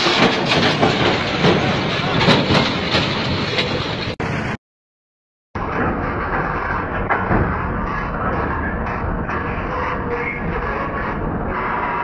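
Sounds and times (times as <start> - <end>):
diesel engine running: 0.0 - 4.6
steel tracks clanking and grinding: 0.0 - 4.6.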